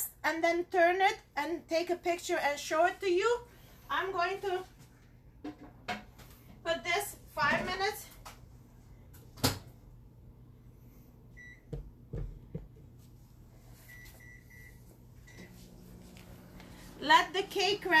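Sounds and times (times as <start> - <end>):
microwave oven humming: 11.3 - 18.0.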